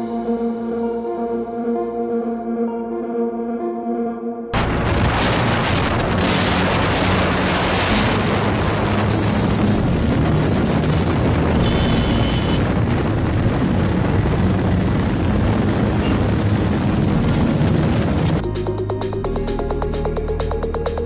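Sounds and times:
motorcycle engines running: 0:04.6 - 0:18.4
wind buffeting microphone: 0:04.6 - 0:18.4.

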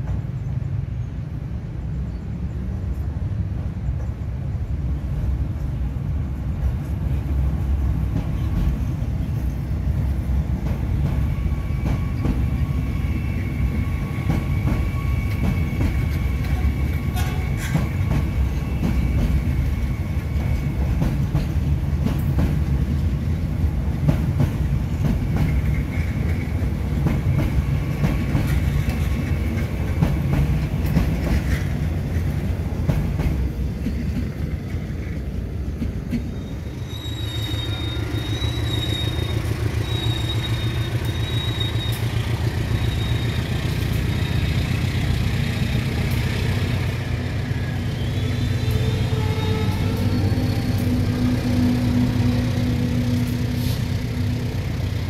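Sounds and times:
clickety-clack over rail joints: 0:00.0 - 0:00.7, 0:02.8 - 0:36.6, 0:38.8 - 0:48.0
train wheels rumbling on rails: 0:00.0 - 0:55.0.

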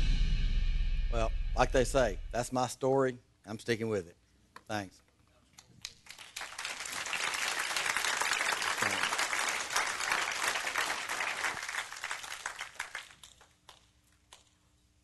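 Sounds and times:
audience applauding: 0:05.8 - 0:13.9.

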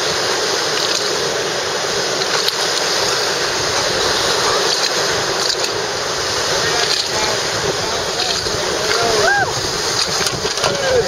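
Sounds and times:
whitewater rushing: 0:00.0 - 0:11.0.

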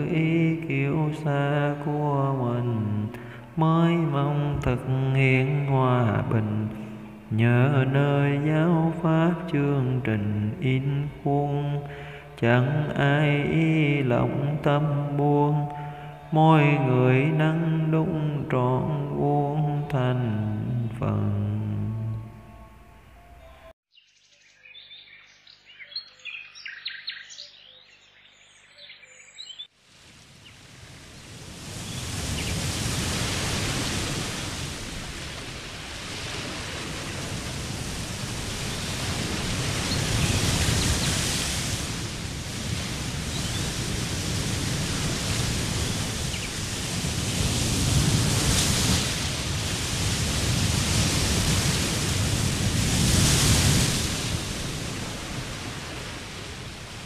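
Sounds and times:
flowing water rushing: 0:29.8 - 0:57.0
birds chirping: 0:39.6 - 0:41.4, 0:43.2 - 0:43.9, 0:45.7 - 0:47.0.

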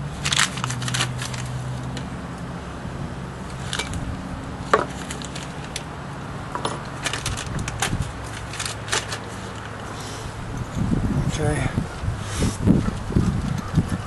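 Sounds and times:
clicks and knocks of engine parts: 0:03.5 - 0:05.9, 0:06.5 - 0:09.8.

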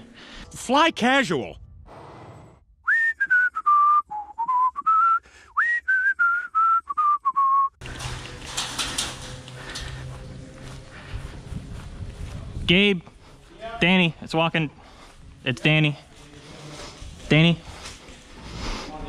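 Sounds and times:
person whistling melody: 0:02.8 - 0:07.8.

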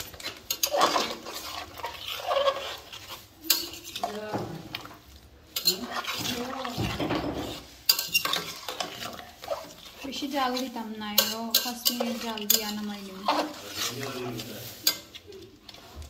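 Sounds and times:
spoon stirring and scraping pan: 0:00.0 - 0:16.0
spoon clinking against pan: 0:03.5 - 0:04.1, 0:07.9 - 0:08.9, 0:11.1 - 0:12.8.

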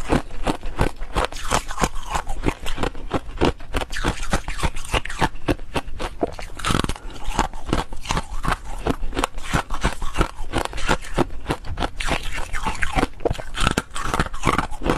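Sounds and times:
foam ice being chewed: 0:00.0 - 0:14.9.

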